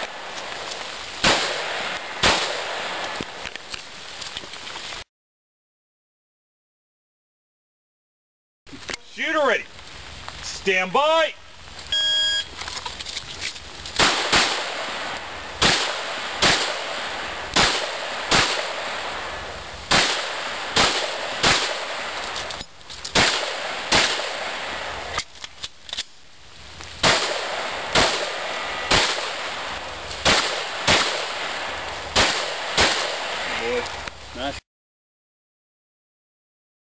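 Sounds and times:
pistol shots: 1.2s - 2.9s, 14.0s - 14.8s, 15.6s - 18.8s, 19.9s - 22.0s, 27.0s - 29.4s, 30.2s - 31.4s, 32.2s - 33.3s
electronic shot-timer beep: 12.0s - 12.5s.

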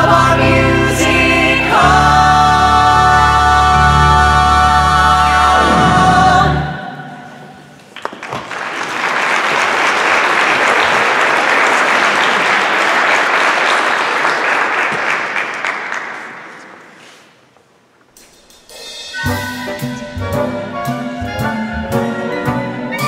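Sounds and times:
musical accompaniment: 0.0s - 7.8s, 18.2s - 23.0s
audience applauding: 7.8s - 16.9s.

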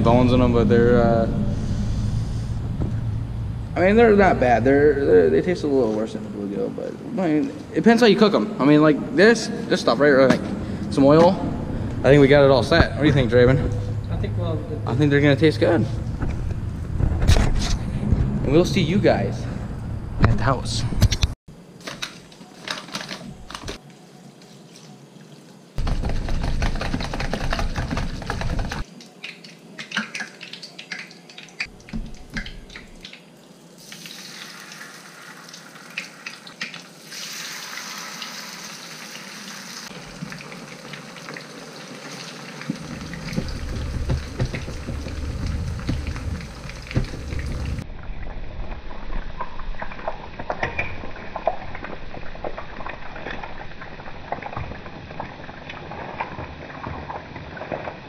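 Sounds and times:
fish frying in oil: 25.8s - 47.8s.

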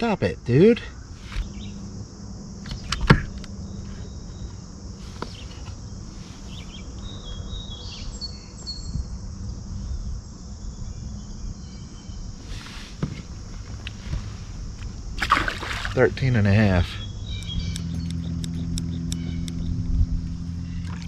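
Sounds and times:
insects buzzing: 0.0s - 21.0s
low steady hum: 8.8s - 21.0s.

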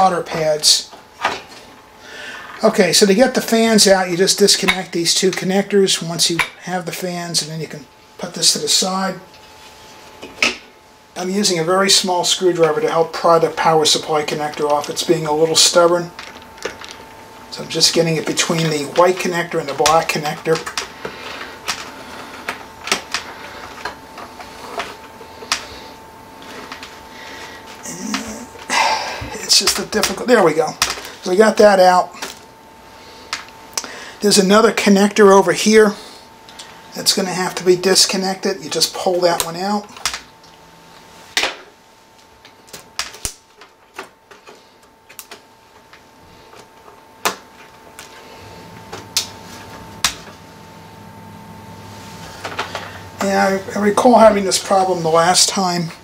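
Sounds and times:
low hum: 45.7s - 56.0s.

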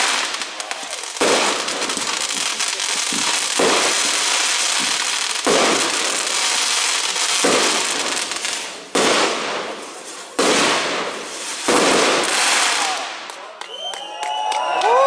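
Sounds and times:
firework shells bursting: 0.0s - 13.4s.

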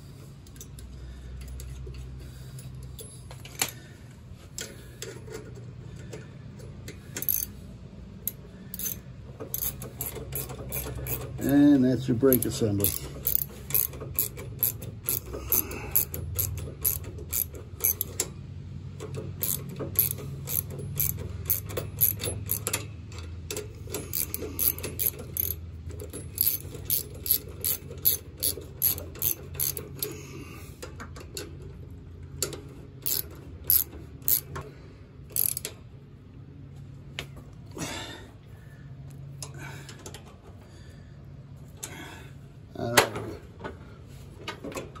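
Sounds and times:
socket ratchet clicking: 6.8s - 7.6s, 8.2s - 11.6s, 12.3s - 30.2s, 32.3s - 34.6s, 35.2s - 35.8s.

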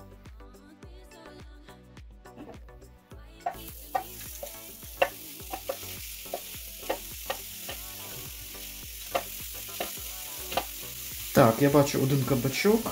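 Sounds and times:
zucchini sizzling on grill: 3.5s - 12.9s.

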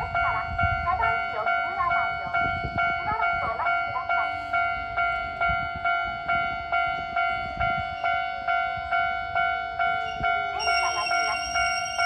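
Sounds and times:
level-crossing warning bell: 0.0s - 12.0s.

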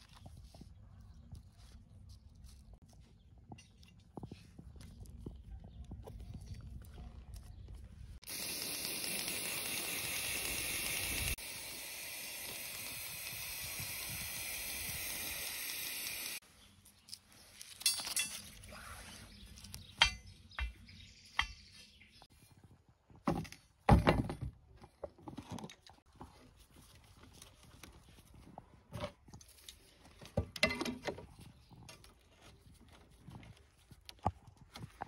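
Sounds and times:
aerosol spray paint hissing: 8.2s - 16.4s
metal clinks and knocks: 17.7s - 18.6s.

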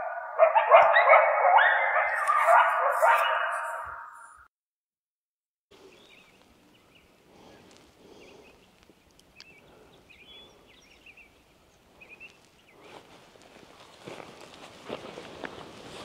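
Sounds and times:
distant birds chirping: 5.8s - 13.0s.

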